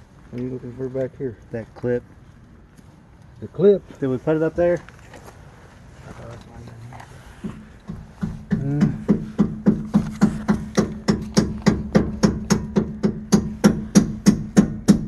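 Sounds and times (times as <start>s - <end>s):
hammer tapping on metal: 7.4s - 15.0s.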